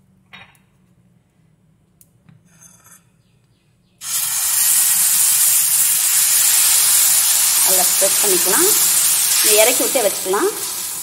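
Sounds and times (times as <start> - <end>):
batter sizzling on hot griddle: 4.0 - 11.0.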